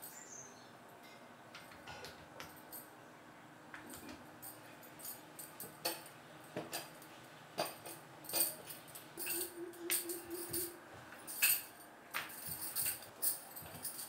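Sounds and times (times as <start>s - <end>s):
bangles jingling: 7.7s - 14.0s.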